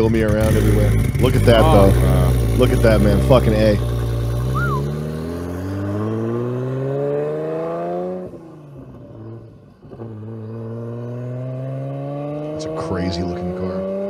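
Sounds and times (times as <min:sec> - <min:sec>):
gear change: 0:00.0 - 0:06.7
sports car accelerating: 0:00.0 - 0:14.0.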